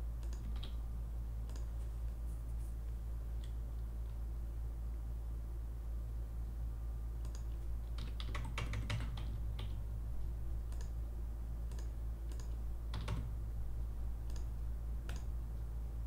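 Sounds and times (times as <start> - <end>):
computer keyboard typing: 0.2 - 0.8, 7.2 - 9.8, 10.7 - 11.0, 11.6 - 13.4, 14.2 - 15.3.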